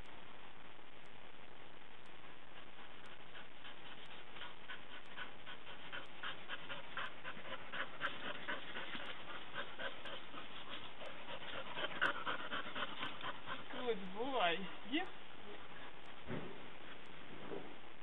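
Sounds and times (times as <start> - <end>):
dog panting: 2.4 - 14.8, 15.5 - 17.2.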